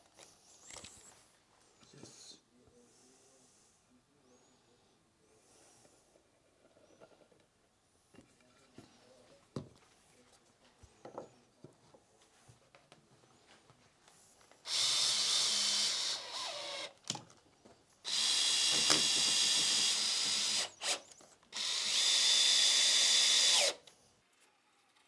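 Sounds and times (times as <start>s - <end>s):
power drill whining: 14.6s - 17.0s, 18.0s - 23.9s.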